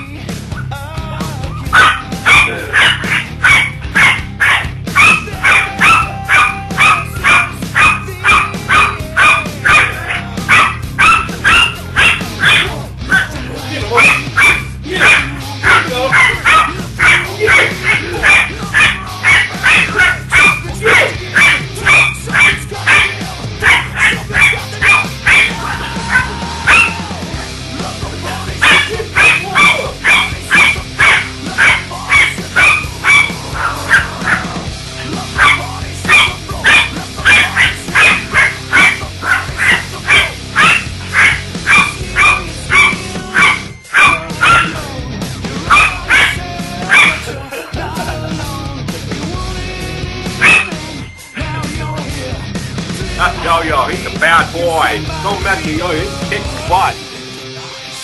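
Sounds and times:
music: 0.0s - 58.0s
dog barking: 1.6s - 27.2s, 28.6s - 34.6s, 35.2s - 44.9s, 45.7s - 47.4s, 50.4s - 50.9s.

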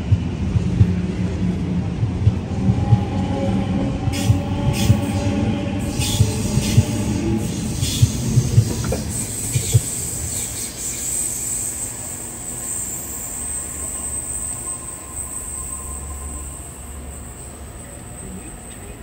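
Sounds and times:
train wheels thumping over joints: 7.8s - 10.2s
high-pitched wheel squeal: 8.9s - 19.0s.

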